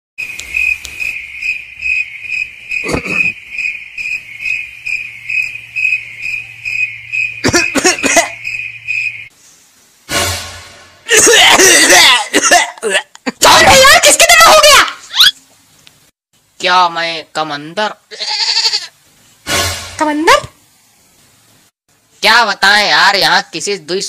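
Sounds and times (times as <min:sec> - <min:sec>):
cricket chirping: 0:00.2 - 0:09.3.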